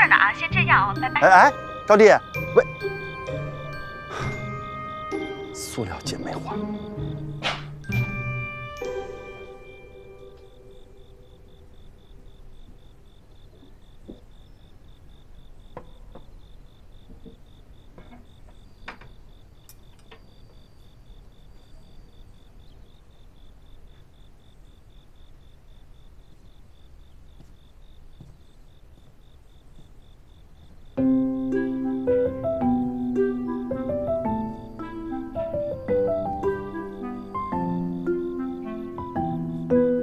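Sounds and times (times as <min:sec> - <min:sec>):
piano music: 0:00.0 - 0:11.8, 0:31.0 - 0:40.0
faint high pulsing tone: 0:00.0 - 0:13.6.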